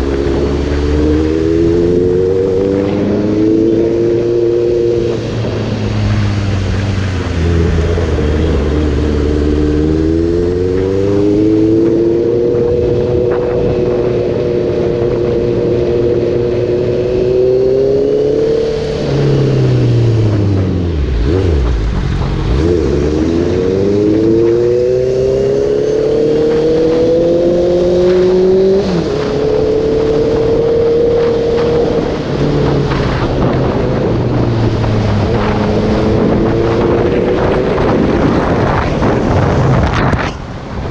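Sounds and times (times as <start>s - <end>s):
motorcycle engine accelerating: 0.0s - 40.9s.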